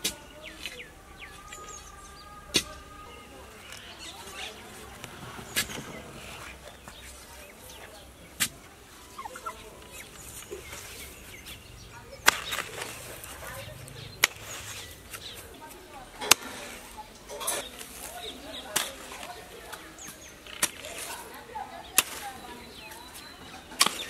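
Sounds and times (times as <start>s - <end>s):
digging tool striking soil: 4.9s - 7.0s, 8.3s - 8.6s, 10.3s - 24.0s
turkey calling: 8.8s - 11.5s.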